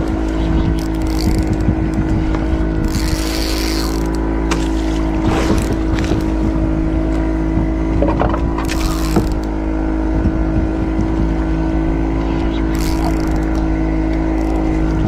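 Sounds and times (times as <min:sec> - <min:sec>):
boat engine running steadily: 0:00.0 - 0:15.0
fishing reel clicks and knocks: 0:00.1 - 0:02.2, 0:02.8 - 0:04.3, 0:08.2 - 0:09.5, 0:12.6 - 0:15.0.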